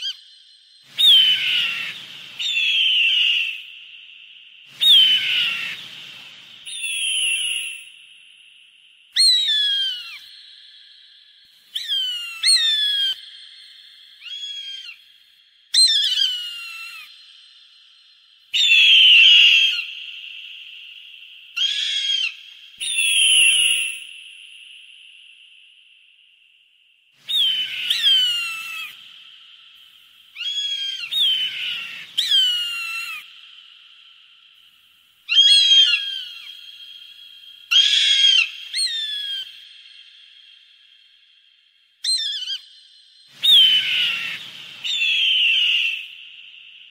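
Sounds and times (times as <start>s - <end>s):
hawk whistled calls: 0.9s - 3.8s, 4.7s - 8.0s, 9.2s - 10.4s, 11.6s - 13.2s, 18.5s - 24.3s, 27.3s - 33.6s, 35.3s - 39.8s, 43.4s - 46.7s.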